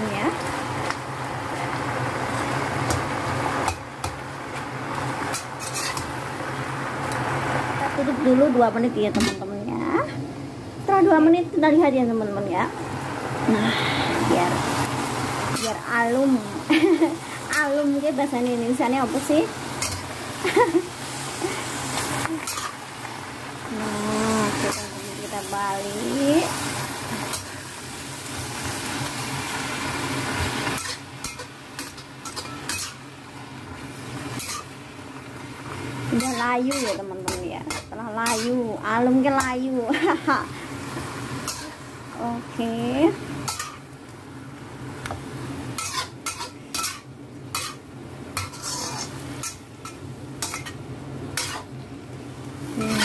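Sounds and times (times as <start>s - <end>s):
sizzling in a wok: 0.0s - 53.0s
metal spatula scraping a wok: 5.3s - 6.1s, 30.6s - 33.0s, 34.3s - 34.8s, 36.1s - 38.6s, 41.4s - 41.8s, 43.4s - 43.8s, 45.8s - 47.8s, 48.4s - 50.8s, 51.4s - 51.7s.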